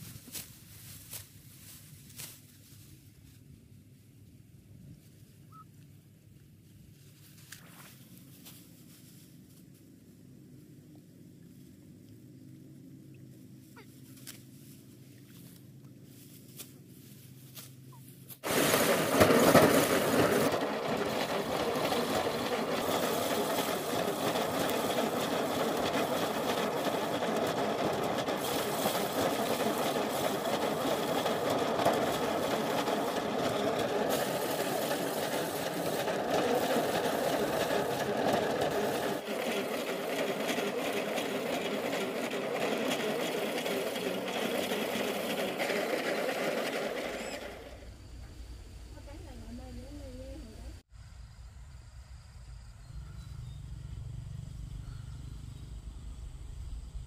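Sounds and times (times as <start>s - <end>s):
thresher drum whirring rattle: 18.4s - 50.8s.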